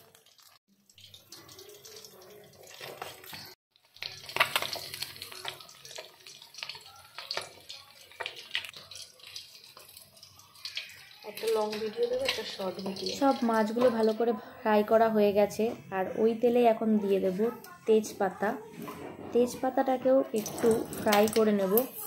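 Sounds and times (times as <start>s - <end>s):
fish sizzling in hot oil: 0.0s - 14.4s.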